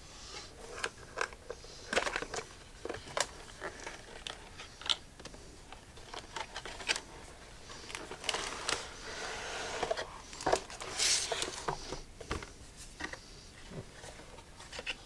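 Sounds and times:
cardboard box scraping and rustling: 0:08.0 - 0:11.9.

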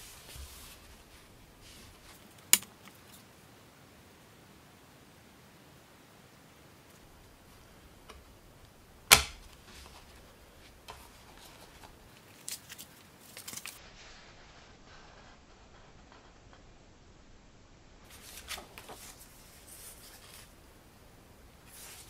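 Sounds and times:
disc snapping onto case hub: 0:09.1 - 0:09.6.

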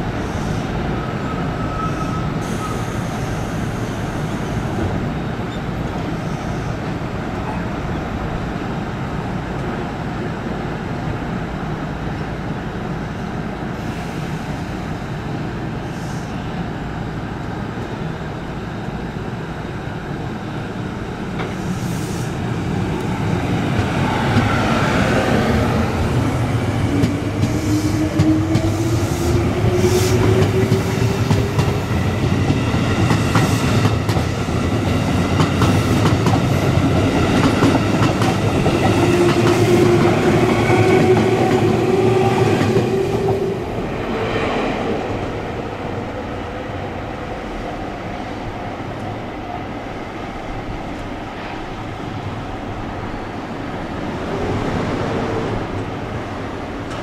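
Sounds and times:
train wheel rumble: 0:20.5 - 0:49.6.

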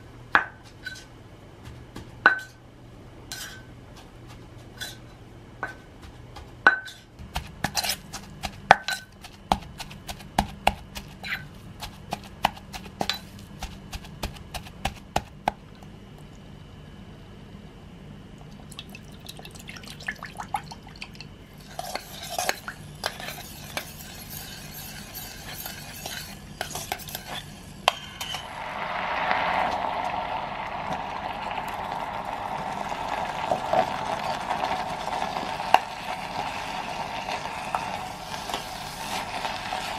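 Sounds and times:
pestle knocking in a mortar: 0:05.6 - 0:15.6
spoon scraping and stirring: 0:07.6 - 0:10.3, 0:21.6 - 0:28.5.

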